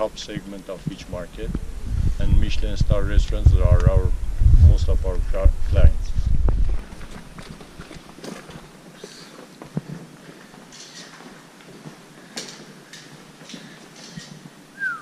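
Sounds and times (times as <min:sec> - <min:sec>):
footsteps on concrete: 0:06.4 - 0:14.7.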